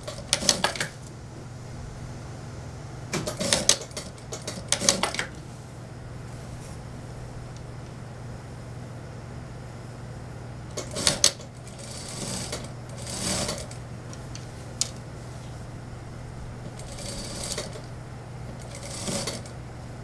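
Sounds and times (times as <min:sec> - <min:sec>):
sewing machine stitching: 0:00.0 - 0:01.1, 0:03.1 - 0:05.4, 0:10.7 - 0:13.8, 0:16.7 - 0:17.9, 0:18.5 - 0:19.6.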